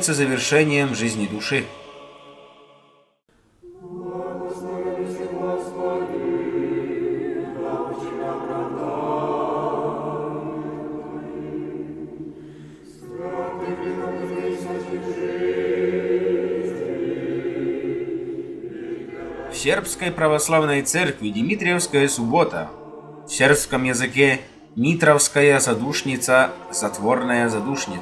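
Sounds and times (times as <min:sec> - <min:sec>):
choir singing chant: 0:00.0 - 0:28.0.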